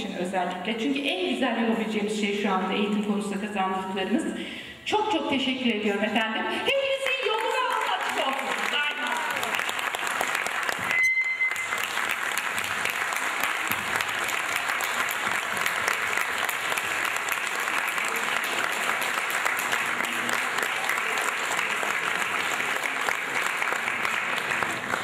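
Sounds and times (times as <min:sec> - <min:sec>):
audience applauding: 0:07.0 - 0:25.0.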